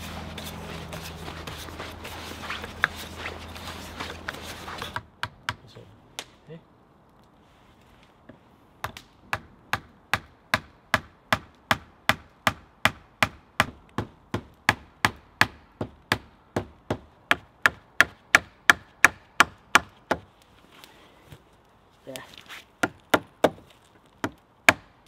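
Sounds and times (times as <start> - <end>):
hand tool striking wood: 0.0 - 5.6.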